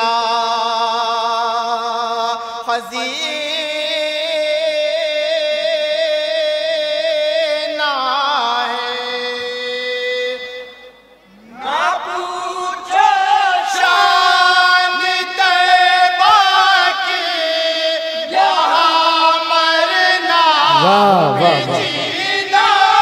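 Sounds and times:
men singing without instruments: 11.5 - 23.0.

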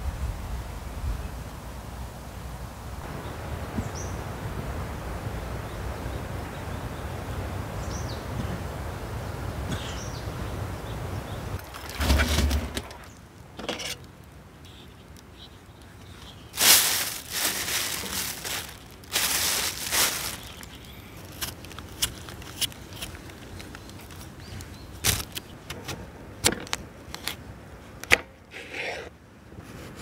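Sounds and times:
wind rumbling on microphone: 0.0 - 12.8
plastic bag crinkling: 16.6 - 24.4.

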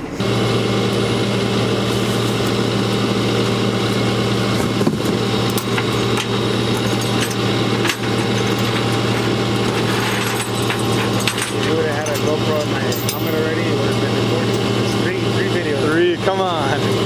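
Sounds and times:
truck engine idling: 0.0 - 17.0
sharp metal clanks: 5.4 - 15.1.

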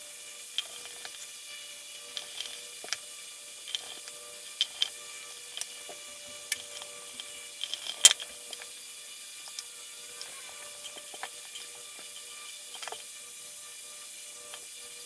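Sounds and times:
faint steady hum: 0.0 - 15.0
screwdriver and parts clicking: 0.6 - 1.3, 2.0 - 8.7, 9.4 - 13.1.

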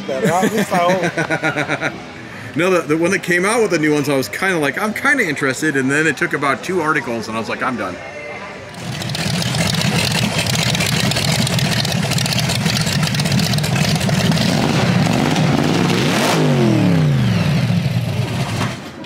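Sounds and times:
loud car engine rumbling: 8.7 - 19.0.

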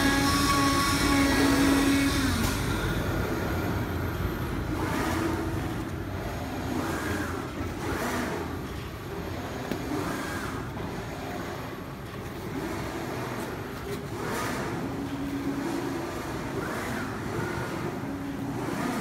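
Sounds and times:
cutting machine humming: 0.0 - 8.6
machine whirring: 0.0 - 19.0.

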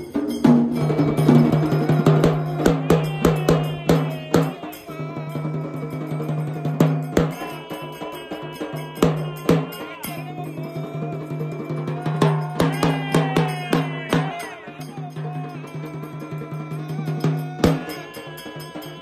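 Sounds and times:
hard uneven drum strikes: 0.0 - 4.7.

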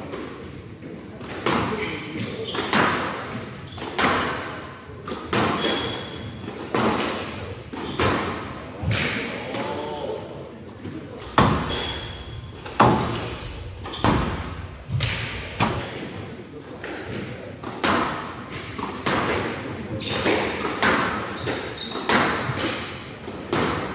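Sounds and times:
squash ball hitting rackets and walls: 0.0 - 9.9, 10.7 - 23.9.

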